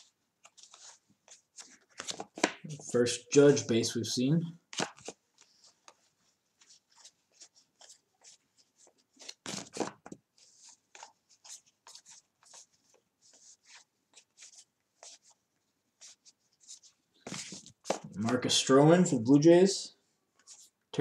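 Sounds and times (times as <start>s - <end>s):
cards flipped through by hand: 0.4s - 2.8s, 4.7s - 6.0s, 6.6s - 15.4s, 16.0s - 18.6s.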